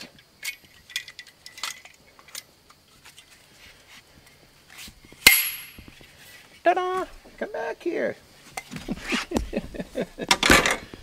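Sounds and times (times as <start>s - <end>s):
light clicks and rattles of gear: 0.0s - 4.9s
sharp click with metallic ring: 5.2s - 5.8s.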